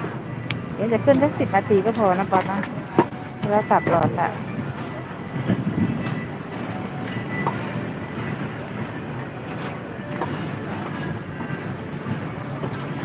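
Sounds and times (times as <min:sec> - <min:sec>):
traffic: 0:00.0 - 0:13.0.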